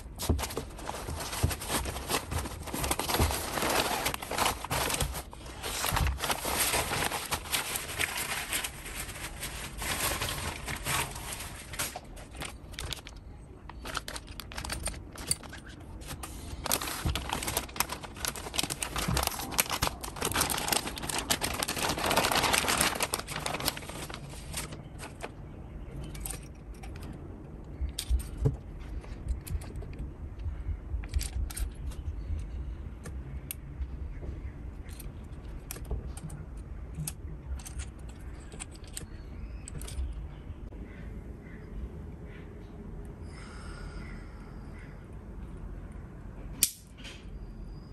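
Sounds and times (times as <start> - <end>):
plastic packaging crinkling: 0.0 - 25.4.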